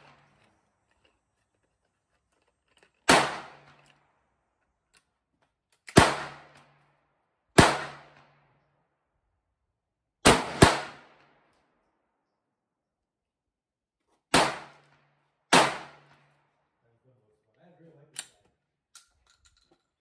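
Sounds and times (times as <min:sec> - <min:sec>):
shotgun shots: 0:03.0 - 0:03.8, 0:05.9 - 0:06.6, 0:07.6 - 0:08.3, 0:10.2 - 0:11.2, 0:14.3 - 0:14.8, 0:15.5 - 0:16.1.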